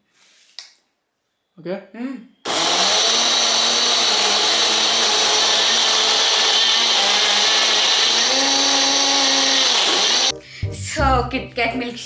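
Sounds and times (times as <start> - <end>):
mixer grinder motor hum: 2.5 - 10.3.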